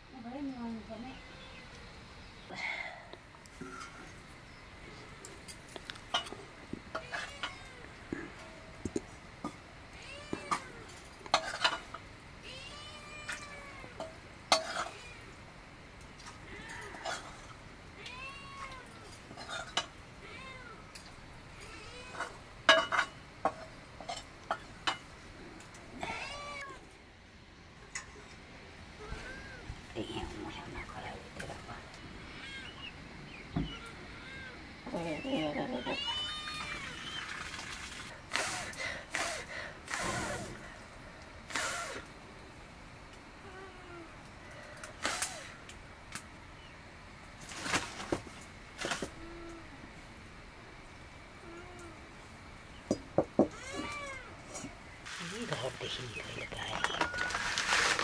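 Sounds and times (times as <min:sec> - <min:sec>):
faint cat meow: 0:12.5 - 0:14.1, 0:16.4 - 0:17.2, 0:26.0 - 0:26.9, 0:43.4 - 0:44.2, 0:53.4 - 0:54.3
cat meowing: 0:26.0 - 0:26.8, 0:53.6 - 0:54.3.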